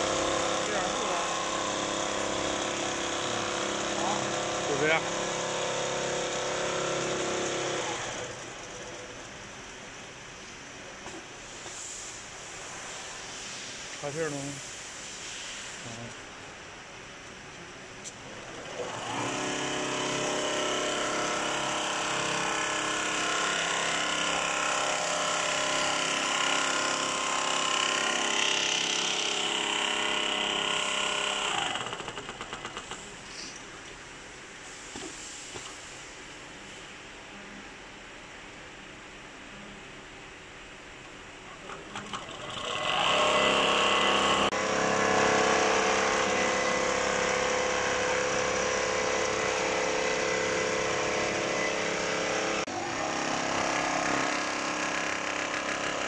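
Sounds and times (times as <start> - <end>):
sewing machine motor hum: 0.0 - 8.4, 18.5 - 33.1, 41.8 - 56.0
background hiss: 10.3 - 18.3, 32.8 - 39.5.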